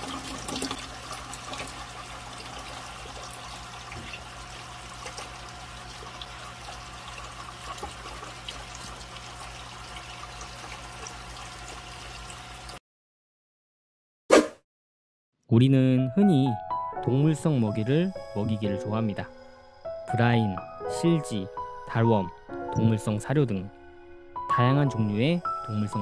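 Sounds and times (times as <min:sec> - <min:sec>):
aquarium filter water bubbling: 0:00.0 - 0:12.8.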